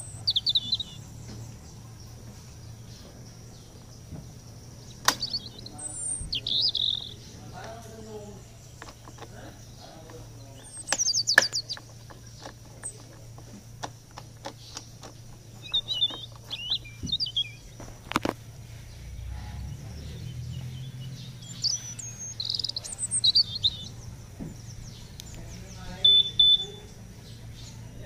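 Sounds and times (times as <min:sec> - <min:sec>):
birds chirping: 0:00.0 - 0:28.0
ignition knob clicks: 0:05.0 - 0:05.5.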